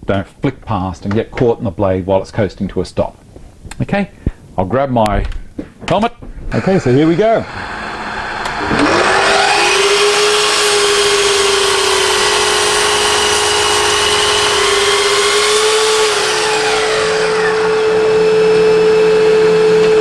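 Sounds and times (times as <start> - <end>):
dust extractor drone: 6.5 - 20.0
mitre saw cutting timber: 6.5 - 20.0.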